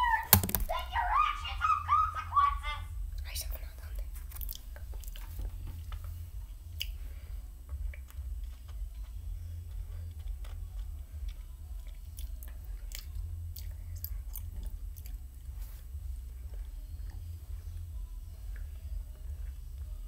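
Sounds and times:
steady low rumble: 0.0 - 20.0
wet lip and tongue clicks: 4.2 - 5.3, 6.8 - 7.0, 10.1 - 15.4.

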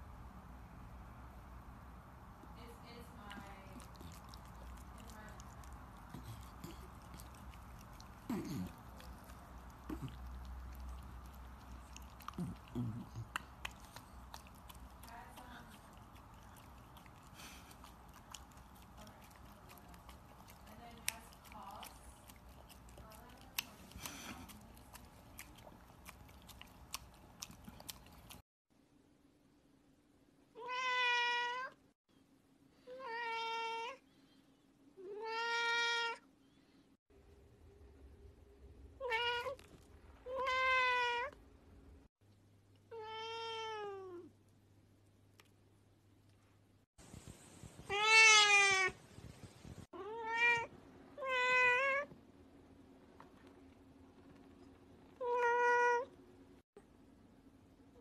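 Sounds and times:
puppy chewing treat: 2.9 - 28.4
wet mouth sounds: 3.8 - 28.4
cat meowing: 30.6 - 31.8, 32.9 - 34.0, 35.0 - 36.2, 40.3 - 41.4, 42.9 - 44.3, 47.9 - 49.0, 50.0 - 52.1, 55.2 - 56.1.

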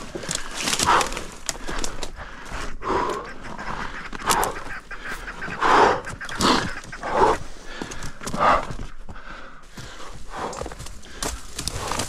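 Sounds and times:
person breathing heavily: 0.0 - 12.0.

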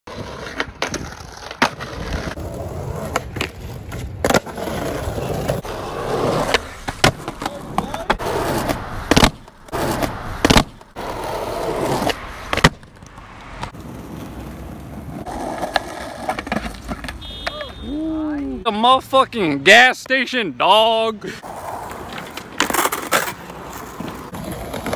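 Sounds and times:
skateboard wheels rolling on concrete: 0.1 - 24.9
skateboard tail clacks: 5.6 - 17.8.

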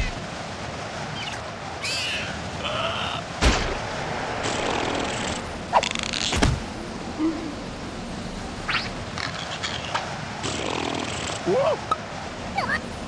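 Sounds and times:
sharp thuds: 3.4 - 4.8.

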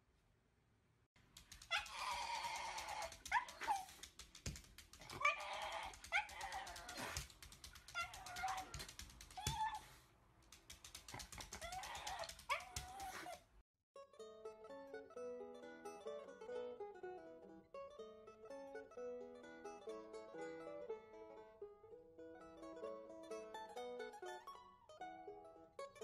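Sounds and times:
dog whining and yowling: 1.6 - 4.1, 5.0 - 10.0, 11.3 - 13.5.

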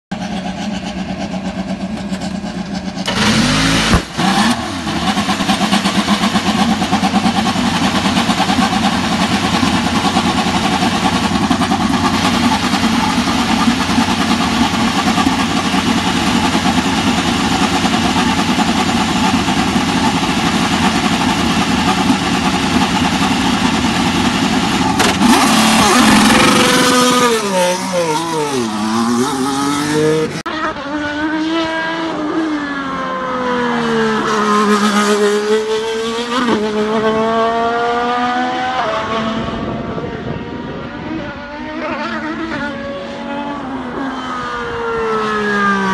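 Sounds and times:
race car engine idling: 0.1 - 3.3, 4.8 - 26.8
race car engine revving: 0.1 - 45.9
race car engine starting: 0.1 - 45.9.

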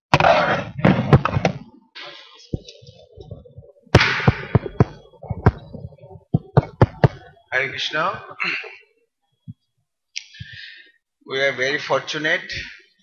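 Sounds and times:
microphone handling knocks and clicks: 0.2 - 1.7, 2.5 - 7.4.

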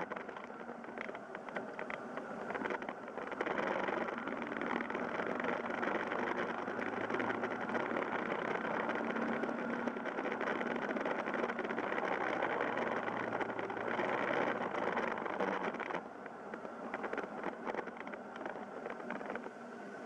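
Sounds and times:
motorcycle engine running: 1.7 - 16.1.

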